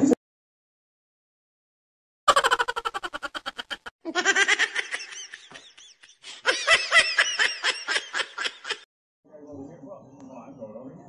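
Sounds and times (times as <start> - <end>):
high-pitched laughter: 2.3 - 8.9.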